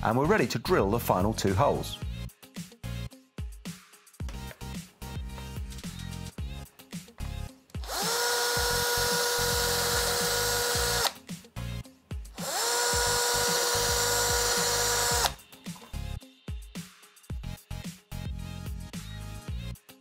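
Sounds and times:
background music with a beat: 0:00.0 - 0:20.0
cordless drill whining: 0:07.8 - 0:11.2, 0:12.4 - 0:15.4.

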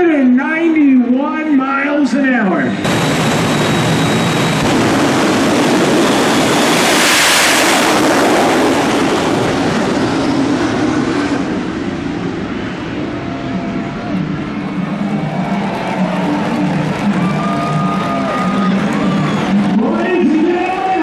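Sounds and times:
jet engines roaring: 0:00.0 - 0:21.0
thin high whine: 0:02.6 - 0:08.5.

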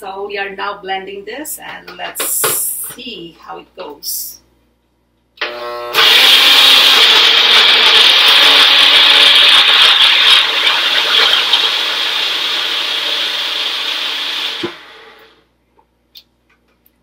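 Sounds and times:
blender whirring and grinding: 0:05.4 - 0:15.4.

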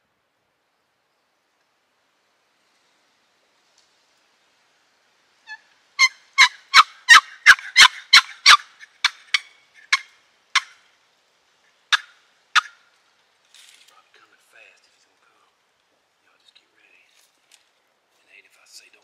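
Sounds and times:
turkey calls: 0:05.4 - 0:11.0, 0:11.7 - 0:13.0.

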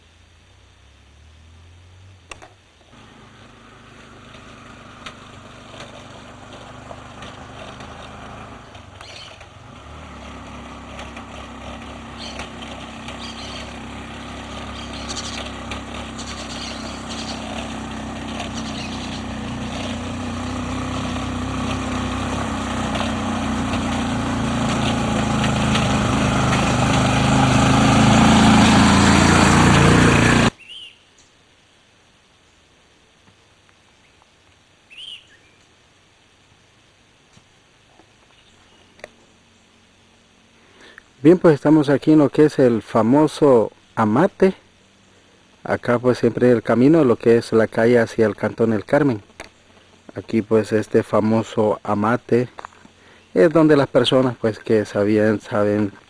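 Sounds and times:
vehicle engine approaching: 0:00.3 - 0:30.6.

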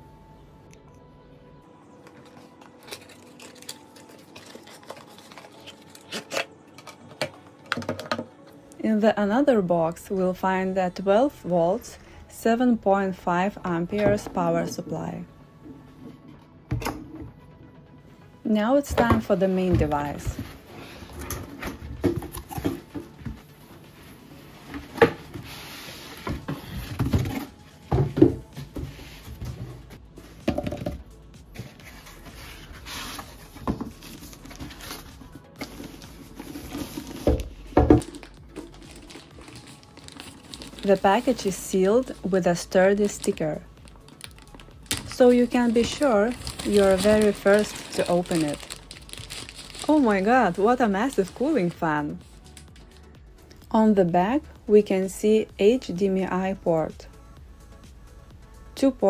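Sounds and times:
cardboard box handled: 0:45.7 - 0:49.8.

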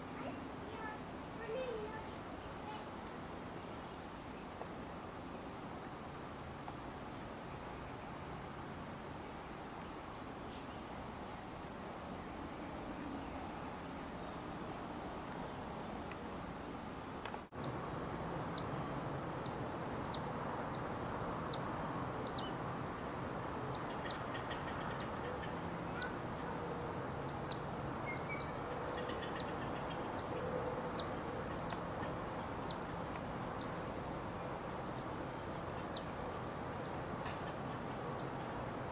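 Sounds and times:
insects buzzing: 0:00.0 - 0:38.9
insects chirping: 0:06.0 - 0:38.9
bird chip calls: 0:23.7 - 0:26.6, 0:27.3 - 0:30.4.

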